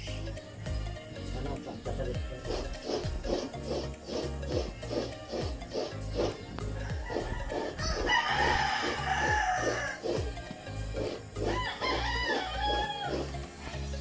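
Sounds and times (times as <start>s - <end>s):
background music with steady beat: 0.0s - 14.0s
rooster crowing: 6.8s - 10.3s, 11.0s - 13.4s.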